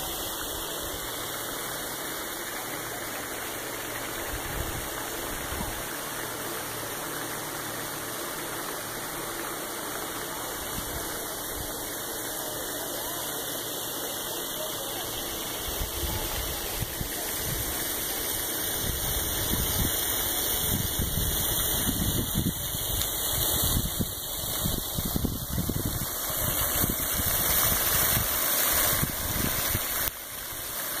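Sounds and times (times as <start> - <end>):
steady hiss: 0.0 - 31.0
wind buffeting microphone: 18.8 - 30.0.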